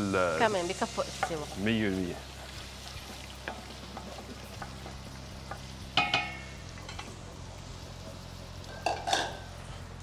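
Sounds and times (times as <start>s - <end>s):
water boiling: 0.0s - 10.0s
spoon tapping metal pot: 5.5s - 7.1s, 8.8s - 9.4s.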